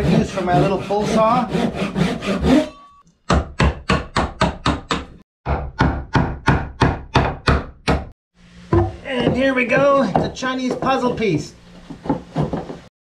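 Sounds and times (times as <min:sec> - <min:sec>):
hammer striking wood chisel: 0:03.3 - 0:08.1, 0:08.8 - 0:11.3.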